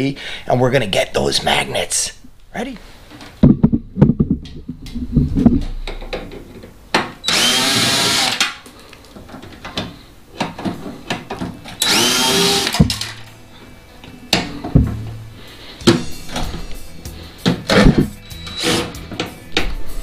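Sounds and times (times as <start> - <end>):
handling knocks and clatters: 3.2 - 7.2, 8.8 - 11.8, 17.4 - 18.2
cordless drill running: 7.2 - 8.6, 11.8 - 13.1.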